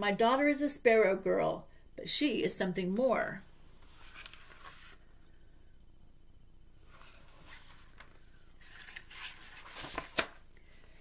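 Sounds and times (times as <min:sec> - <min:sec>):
paper page rustling: 0:03.8 - 0:05.0, 0:06.8 - 0:10.4.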